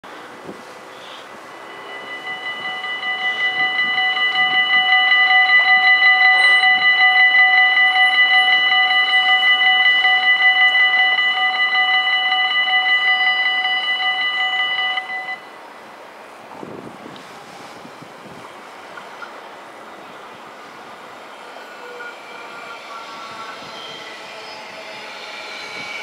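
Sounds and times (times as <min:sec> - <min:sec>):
level crossing bells ringing: 0:01.3 - 0:15.5.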